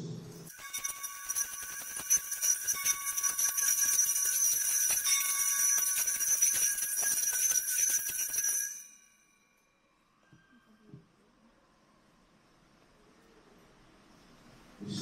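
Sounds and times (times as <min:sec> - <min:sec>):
hand bells jingling: 0:00.4 - 0:09.6.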